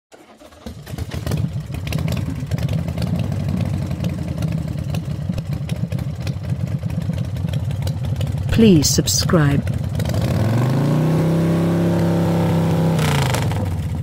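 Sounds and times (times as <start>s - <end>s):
engine idling: 0.1s - 10.3s.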